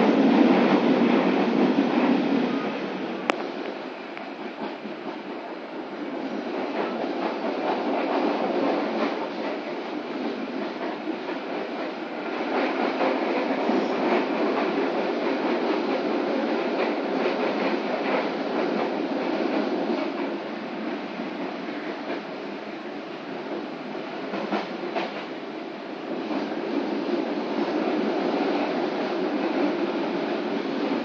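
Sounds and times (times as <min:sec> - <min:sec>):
train wheels rumbling on track: 0:00.0 - 0:31.0
faint clicks over rails: 0:03.2 - 0:22.6, 0:23.3 - 0:25.5.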